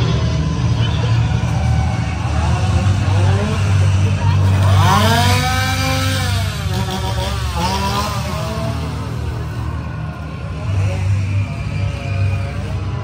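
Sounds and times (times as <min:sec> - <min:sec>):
chainsaw revving: 0:04.4 - 0:09.2.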